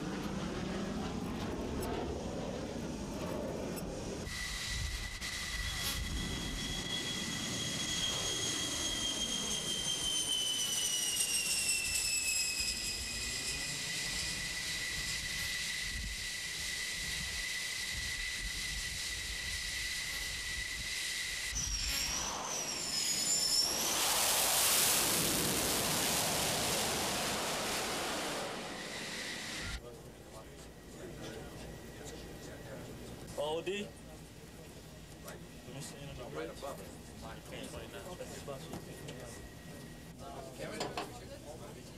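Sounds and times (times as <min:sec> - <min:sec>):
jet engines whining: 0:00.0 - 0:40.8
jet exhaust blast: 0:04.0 - 0:29.8.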